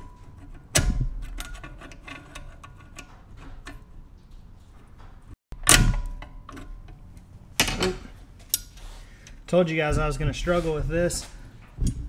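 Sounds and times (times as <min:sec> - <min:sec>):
sharp metal clank: 0:05.6 - 0:06.9.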